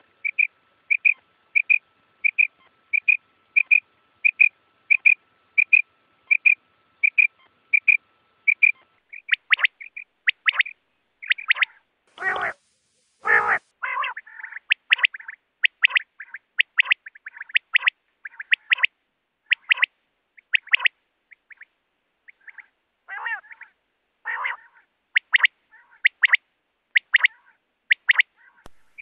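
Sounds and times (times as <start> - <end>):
quail calling: 0.0 - 12.6, 13.2 - 21.7, 22.3 - 29.0
harsher lower bird calls: 0.0 - 18.9, 19.5 - 21.7, 27.0 - 29.0.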